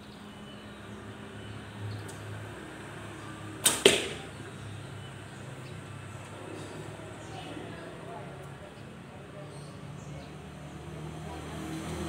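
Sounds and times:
bow being shot: 3.6s - 4.3s.

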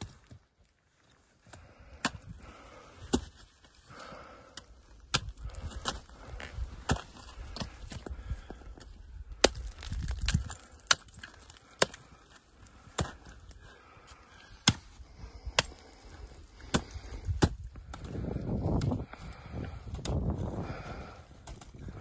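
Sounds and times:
ice axe striking ice: 9.4s - 12.3s.

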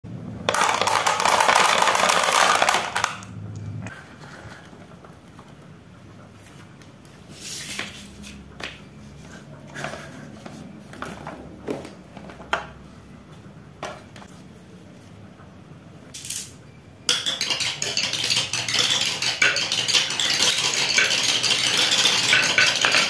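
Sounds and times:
wooden blocks knocking and scraping: 0.4s - 3.3s, 7.6s - 12.9s, 13.8s - 14.4s, 17.1s - 23.0s
marbles clattering down wooden ramp: 0.5s - 3.3s, 17.1s - 23.0s.

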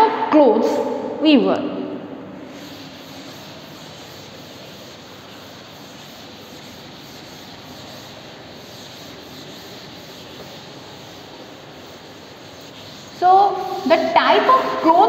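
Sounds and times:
duster rubbing on chalkboard: 2.4s - 15.0s.

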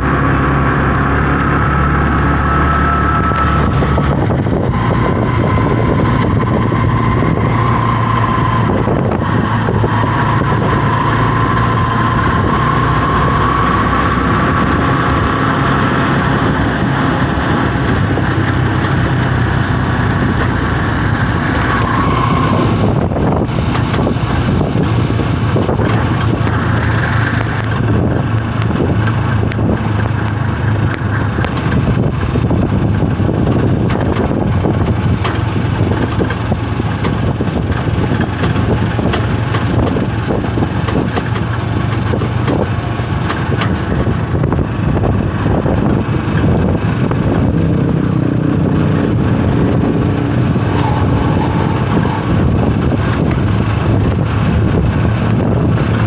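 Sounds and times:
wavering high whine: 0.0s - 31.4s, 43.7s - 55.6s
engine drone: 0.0s - 56.0s
road noise rushing: 0.0s - 56.0s.

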